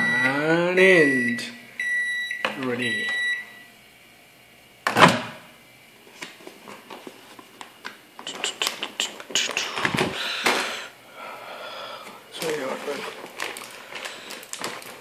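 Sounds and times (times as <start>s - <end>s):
paper bag crinkling: 12.3s - 15.0s.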